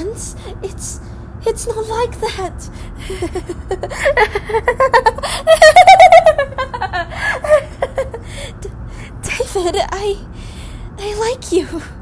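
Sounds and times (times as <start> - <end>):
woman laughing: 3.0 - 8.3.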